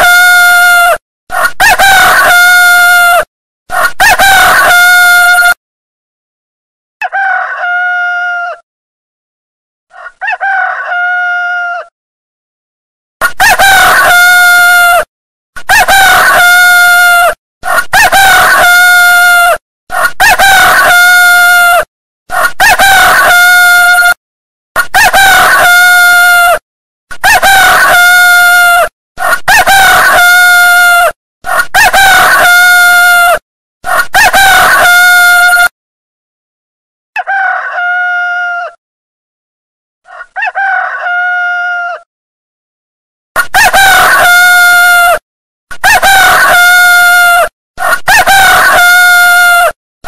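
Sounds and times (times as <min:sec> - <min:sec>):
rooster crowing: 0:00.0 - 0:05.6, 0:07.0 - 0:08.6, 0:09.9 - 0:11.9, 0:13.3 - 0:15.1, 0:15.7 - 0:17.4, 0:18.0 - 0:24.2, 0:25.0 - 0:26.6, 0:27.2 - 0:35.7, 0:37.2 - 0:38.8, 0:40.1 - 0:42.1, 0:43.4 - 0:45.2, 0:45.8 - 0:49.8.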